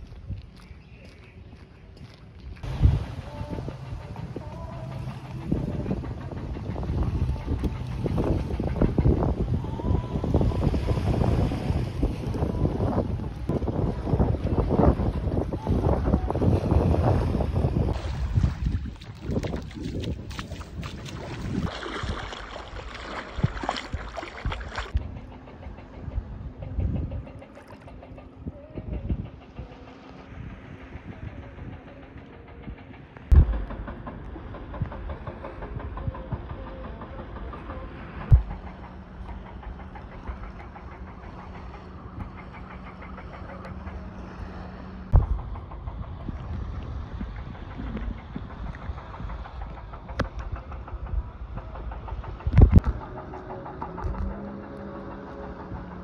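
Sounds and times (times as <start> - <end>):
low hum: 0.0 - 56.0
wind rumbling on microphone: 0.0 - 56.0
small waves lapping on sand: 17.9 - 24.9
distant rapid knocking: 31.2 - 46.6
loud thump: 33.3 - 34.1.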